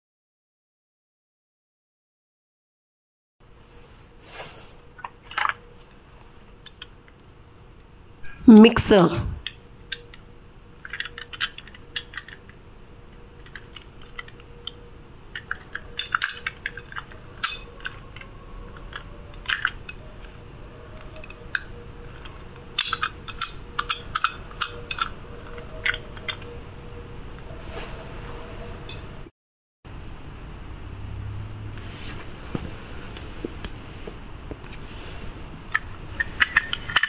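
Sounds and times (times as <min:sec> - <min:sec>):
faint steady hum: 0:03.4 - 0:29.3, 0:29.9 - 0:37.0
plastic toy clicking: 0:10.8 - 0:12.6, 0:13.4 - 0:14.8, 0:15.4 - 0:20.4, 0:21.0 - 0:26.5.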